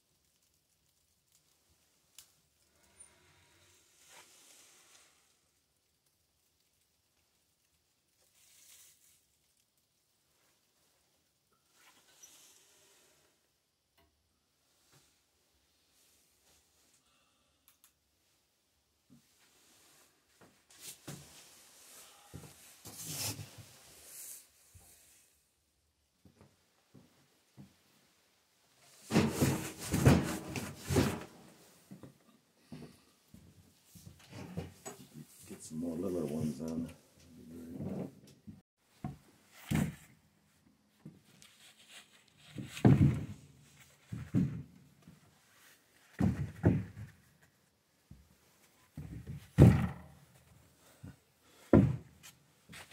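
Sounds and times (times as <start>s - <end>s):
clothing rustling: 26.3s - 32.0s, 41.0s - 49.5s.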